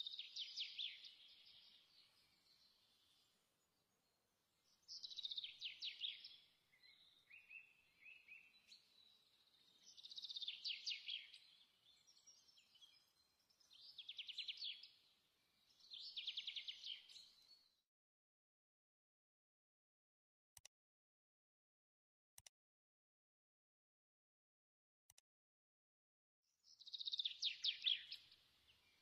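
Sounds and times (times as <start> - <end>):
soft bird chirps: 0.0 - 17.8, 26.5 - 29.0.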